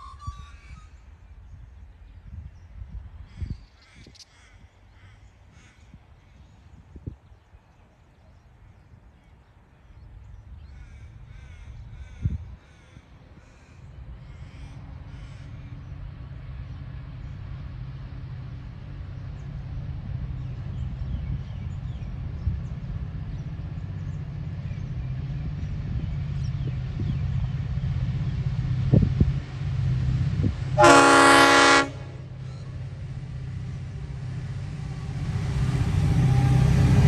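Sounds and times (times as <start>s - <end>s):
freight train rumble: 0.0s - 37.0s.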